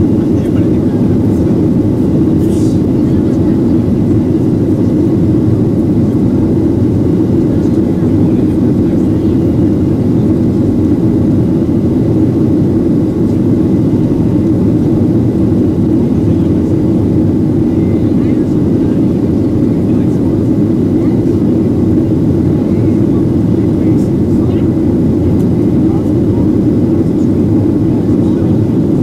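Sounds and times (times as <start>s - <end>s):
rushing air: 0.0s - 8.9s
jet engine roar in cabin: 0.0s - 29.0s.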